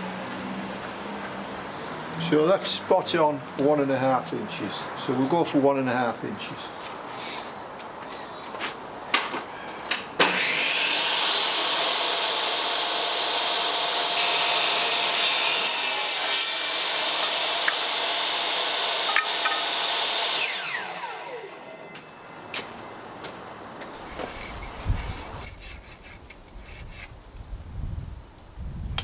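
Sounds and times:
saw ripping wood: 10.2s - 21.6s, 24.1s - 27.2s
table saw whine: 10.2s - 22.3s.

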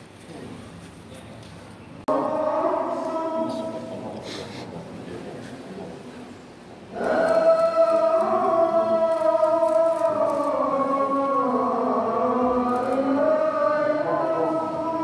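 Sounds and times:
voices chanting devotional melody: 2.0s - 4.4s, 6.8s - 15.0s.

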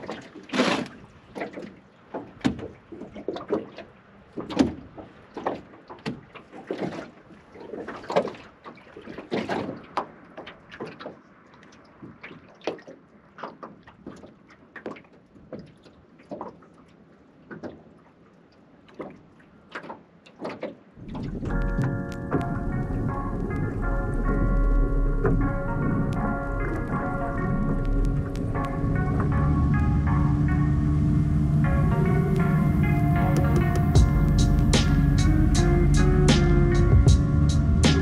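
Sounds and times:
knocks and clunks in metal boat: 0.0s - 11.2s, 18.9s - 24.4s
water splashes: 0.0s - 38.0s.

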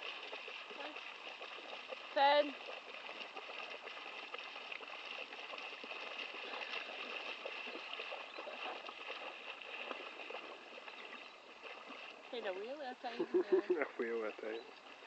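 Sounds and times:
dog splashing through water: 0.0s - 12.9s.

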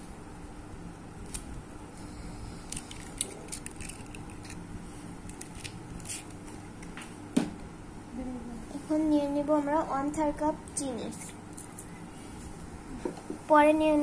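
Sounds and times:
eggshell cracking: 2.8s - 4.6s.

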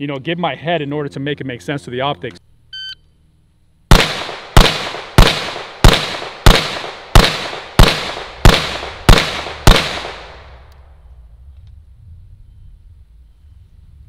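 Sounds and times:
gunshots with echo: 3.9s - 10.7s.

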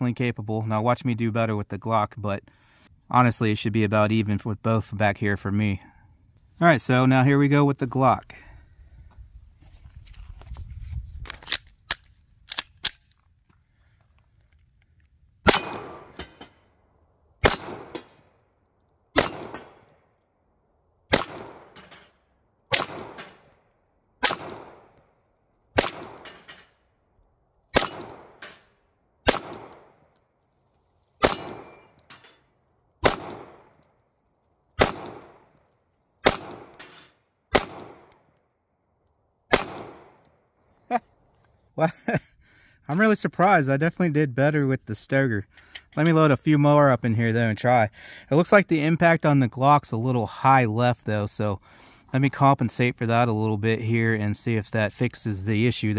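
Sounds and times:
pistol shots with echo: 15.5s - 16.4s, 17.4s - 18.2s, 19.1s - 19.9s, 21.1s - 21.8s, 22.7s - 23.5s, 24.2s - 25.0s, 25.8s - 26.4s, 27.7s - 28.5s, 29.2s - 30.0s, 31.2s - 32.0s, 33.0s - 33.8s, 34.8s - 35.5s, 36.2s - 36.9s, 37.5s - 38.2s, 39.5s - 40.3s.

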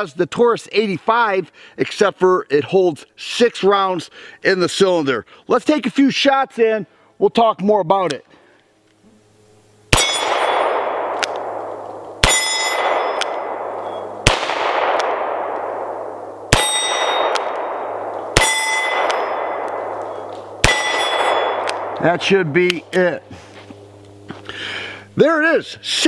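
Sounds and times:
steel plate target ringing: 9.9s - 15.9s, 16.5s - 23.1s
gunshot echo off woods: 9.9s - 22.3s
revolver shots: 9.9s - 23.0s.

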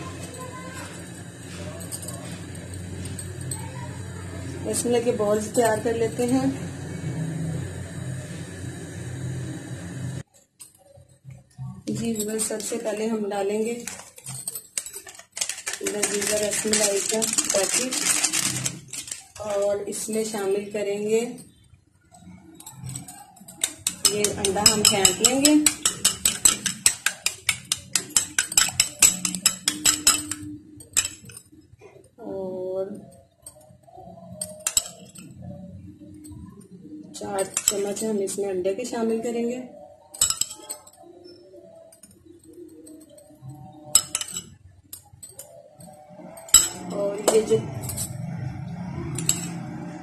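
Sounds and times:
utensil clinking against ceramic bowl: 0.0s - 4.0s, 21.4s - 31.6s, 33.0s - 36.6s, 37.2s - 38.4s, 40.0s - 50.0s
low background murmur: 0.0s - 50.0s.

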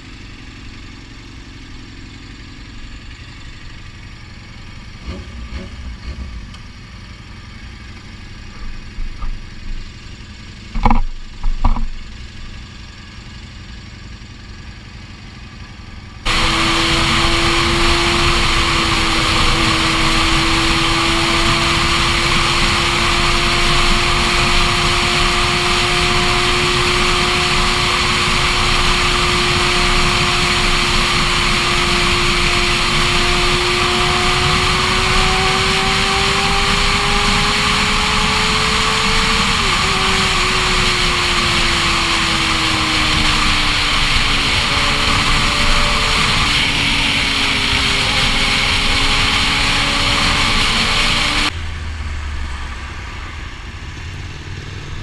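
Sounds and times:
motorcycle engine idling: 0.0s - 17.2s
motorcycle engine cruising: 0.0s - 55.0s
motorcycle throttle blips: 2.4s - 12.5s, 16.3s - 51.6s.

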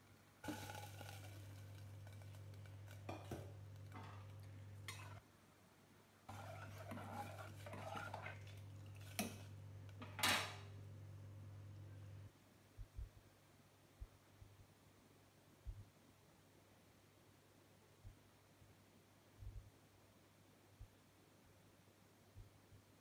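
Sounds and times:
steady low hum: 0.0s - 5.2s, 6.3s - 13.2s
metal ladle scraping a pot: 0.4s - 4.3s, 4.9s - 5.2s, 6.3s - 9.4s.

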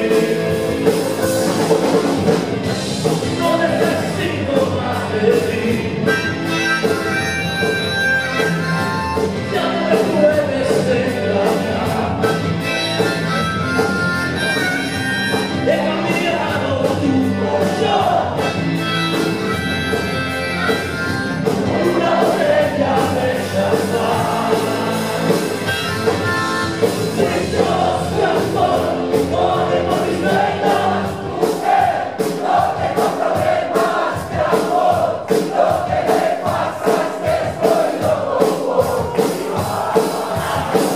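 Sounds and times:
voices singing: 0.0s - 1.5s, 3.3s - 40.9s
drum beat: 0.0s - 40.9s
live rock band playing: 0.0s - 40.9s.

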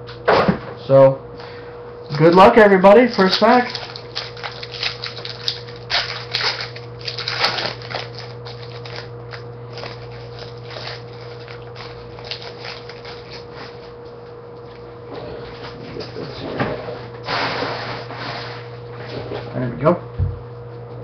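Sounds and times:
cards rustling: 2.1s - 13.8s
foil wrapper crinkling: 2.1s - 14.0s.

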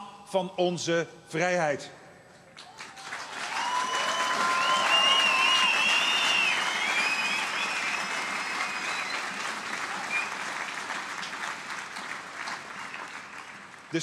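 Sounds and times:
crowd applauding: 2.6s - 14.0s.

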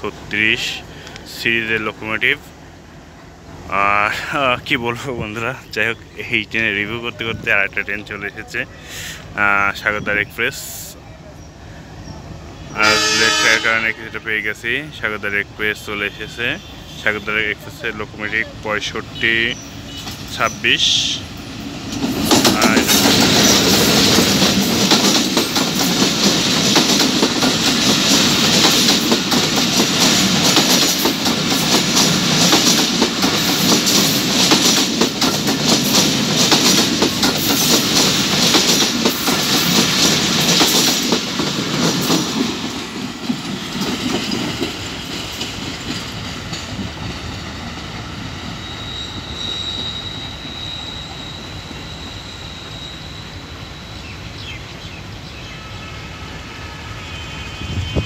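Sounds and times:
train wheels clattering over rails: 21.5s - 48.5s.

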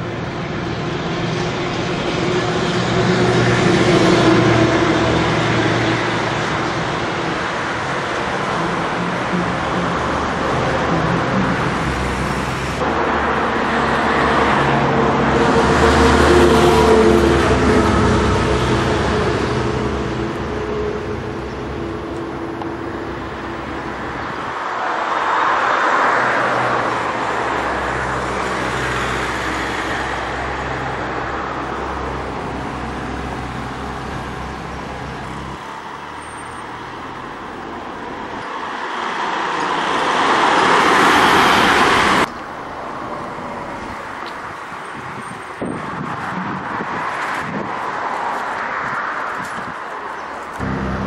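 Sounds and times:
vehicle engine humming: 0.0s - 24.8s, 26.2s - 38.8s, 40.9s - 46.1s, 49.8s - 51.0s
cars passing: 0.0s - 51.0s.

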